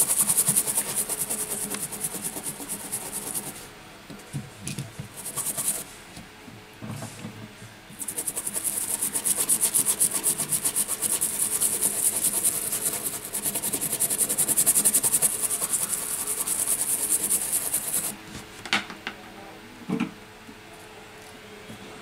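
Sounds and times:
stiff brush scrubbing: 0:00.0 - 0:03.6, 0:05.1 - 0:05.8, 0:08.0 - 0:18.1.

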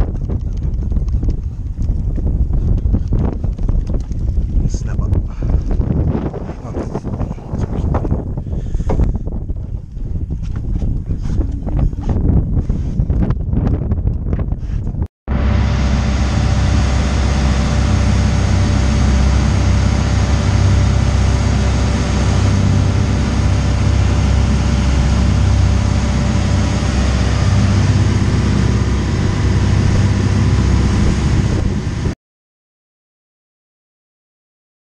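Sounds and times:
boat engine humming: 0:15.3 - 0:32.2
water rushing past hull: 0:15.3 - 0:32.2.

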